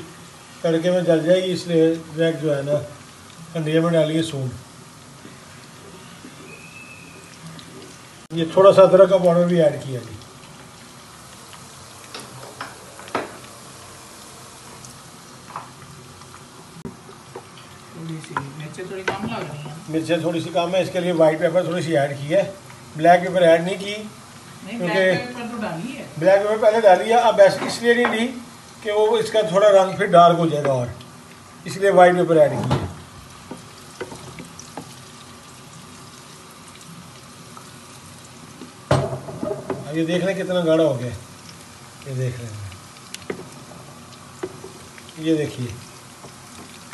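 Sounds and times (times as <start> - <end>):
food frying in a pan: 0.0 - 46.9
porridge simmering in a pot: 0.0 - 46.9
wooden spoon stirring in a pot: 33.3 - 39.9, 41.2 - 46.9.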